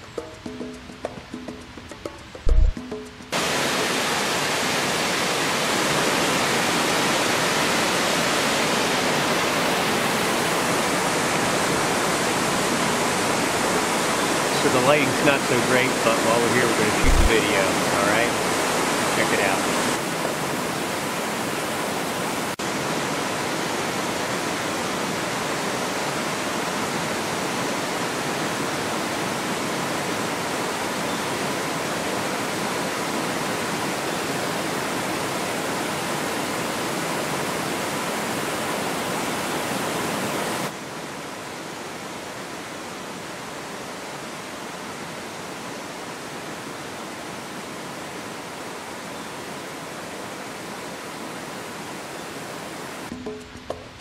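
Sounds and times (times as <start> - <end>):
waterfall rushing: 2.0 - 53.2.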